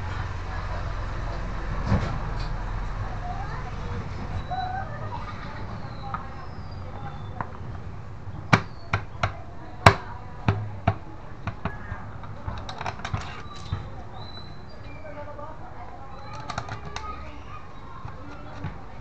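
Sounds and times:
plastic and metal parts knocking: 7.3s - 14.0s, 16.2s - 17.2s, 17.9s - 19.0s.

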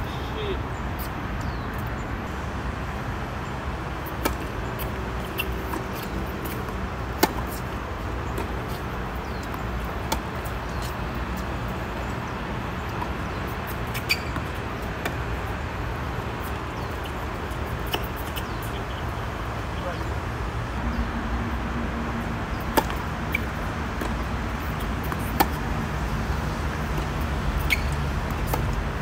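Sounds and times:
steady background noise: 0.0s - 29.0s
tennis ball struck by racquets: 4.0s - 7.7s, 22.6s - 25.7s, 26.7s - 28.7s
tennis ball bouncing on hard court: 4.0s - 10.9s, 22.6s - 28.8s.

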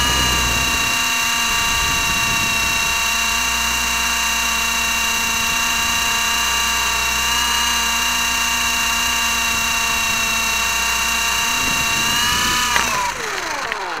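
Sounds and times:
drone hitting the ground: 0.0s - 3.2s
drone propellers whining: 0.0s - 14.0s.

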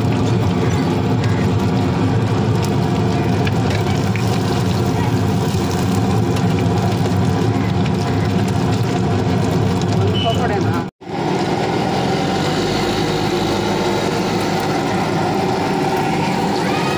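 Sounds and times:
chicken sizzling in hot oil: 0.0s - 16.9s
low engine hum: 11.0s - 16.9s.

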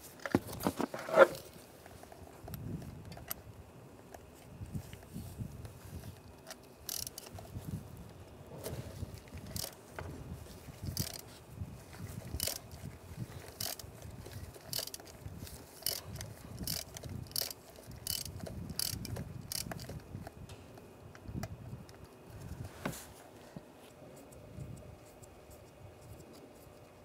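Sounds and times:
ratchet clicking: 6.1s - 7.5s, 9.2s - 9.8s, 10.8s - 11.2s, 12.2s - 20.1s.

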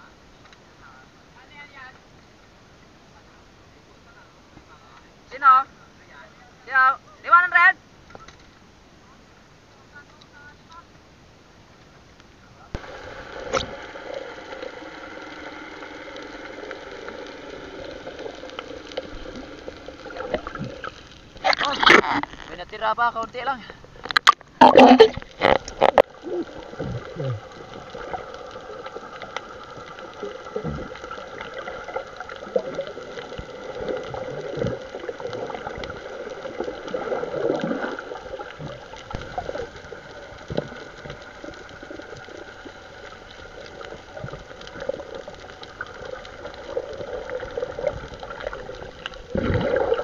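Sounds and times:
steady hum: 0.0s - 50.0s
water gurgling and sloshing: 12.8s - 22.6s, 23.7s - 50.0s.

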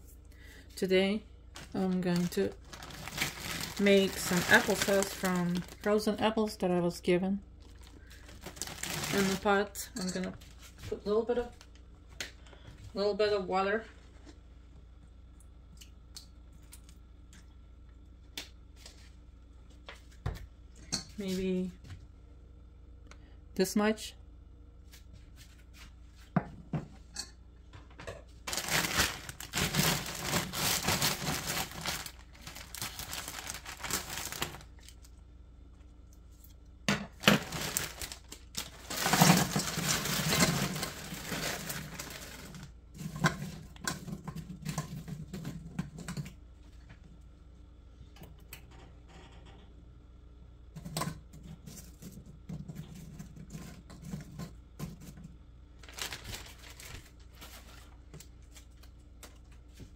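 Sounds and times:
plastic bag crinkling: 1.5s - 6.1s, 7.6s - 9.6s, 28.4s - 35.1s, 37.2s - 42.8s, 55.8s - 58.9s
frozen slices tumbling into pot: 1.6s - 6.0s, 7.7s - 9.6s, 28.4s - 35.0s, 37.1s - 46.2s.

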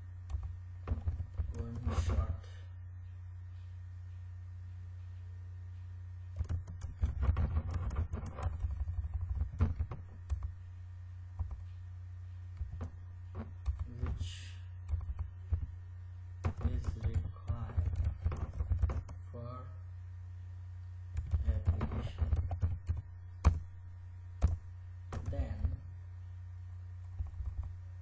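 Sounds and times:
steady low hum: 0.0s - 28.0s
keyboard keys clicking: 6.3s - 10.5s, 12.6s - 14.2s, 14.9s - 15.7s, 16.4s - 19.2s, 21.1s - 23.7s, 24.4s - 25.8s, 27.0s - 27.7s.

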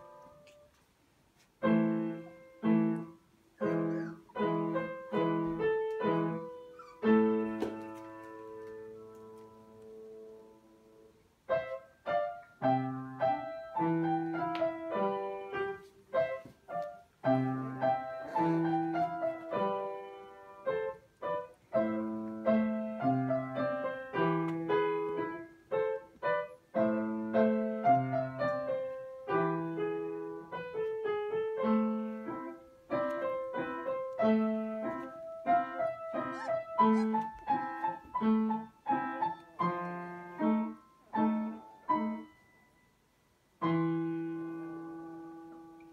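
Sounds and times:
solo piano music: 0.0s - 0.8s, 1.6s - 45.9s.

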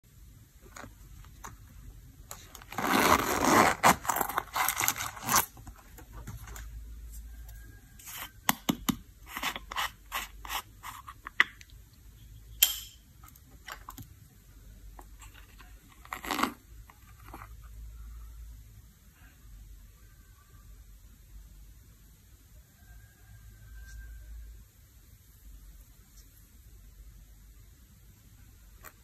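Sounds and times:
metal zipper unzipping: 2.5s - 5.6s, 16.0s - 16.6s.

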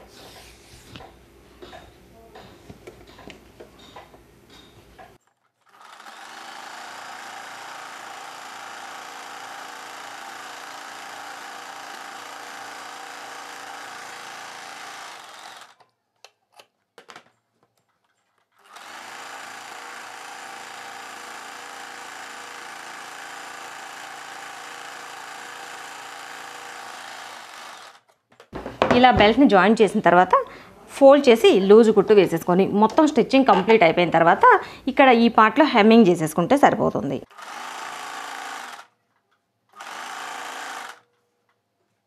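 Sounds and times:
sewing machine running: 5.6s - 15.8s, 18.6s - 28.0s, 37.3s - 39.0s, 39.7s - 41.1s.

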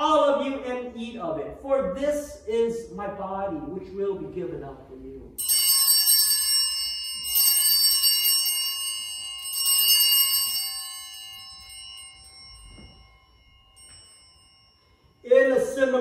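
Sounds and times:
altar bells ringing: 5.4s - 16.0s.

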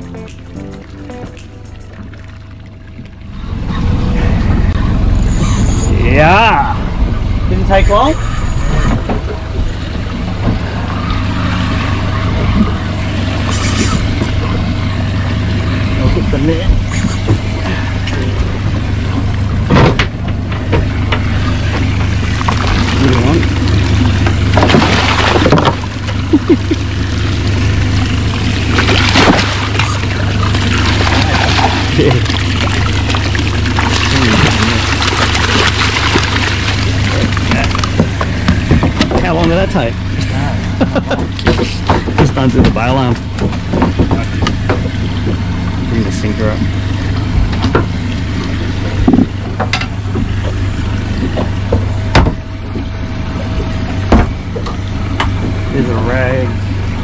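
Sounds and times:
boat motor idling hum: 0.0s - 57.0s
fish splashing and thrashing: 0.0s - 57.0s
short squeaks: 5.1s - 6.0s, 8.1s - 9.2s
knocks on boat: 37.5s - 39.6s, 41.2s - 45.4s, 51.2s - 52.9s, 54.0s - 55.6s.

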